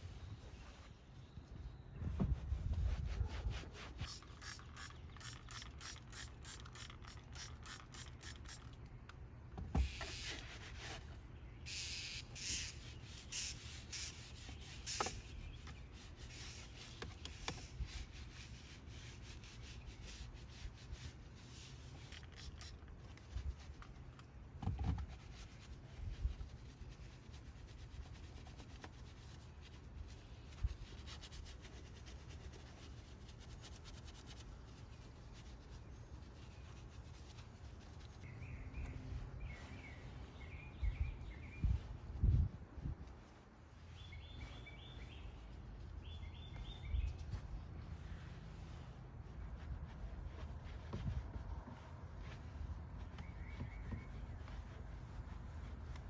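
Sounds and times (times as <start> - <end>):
towel rubbing on trim: 2.2 - 8.6, 10.1 - 11.2, 12.1 - 24.1, 47.4 - 56.0.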